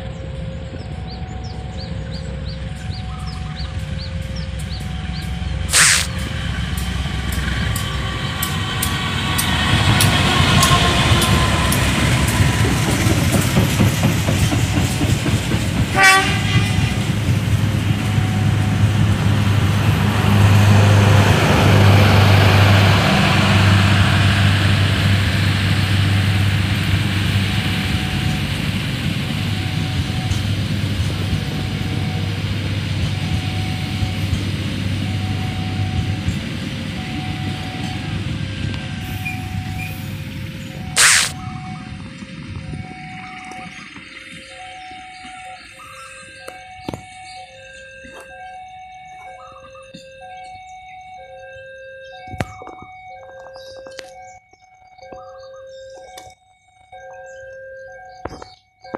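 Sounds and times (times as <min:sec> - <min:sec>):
train engine drone: 0:00.0 - 0:58.9
wheels clattering over rail joints: 0:00.5 - 0:44.6
train horn blast: 0:09.2 - 0:12.6, 0:15.9 - 0:17.3.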